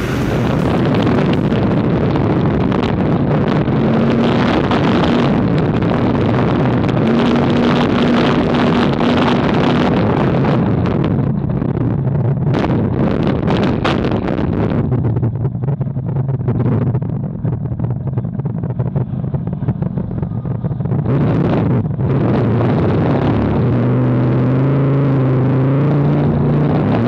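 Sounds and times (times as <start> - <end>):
water noise: 0.0 - 3.6
boat engine running hard: 0.0 - 27.0
wind buffeting microphone: 0.0 - 27.0.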